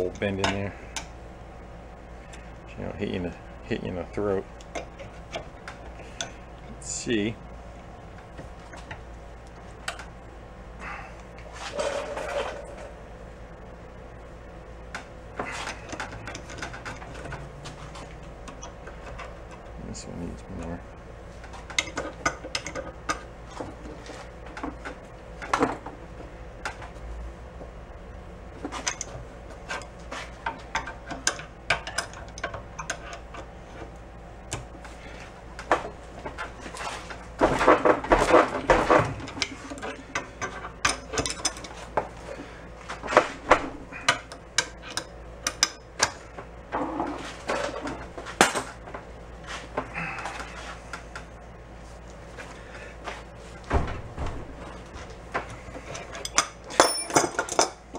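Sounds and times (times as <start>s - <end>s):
wrenches clanking on metal bar: 36.4s - 41.8s, 55.8s - 57.8s.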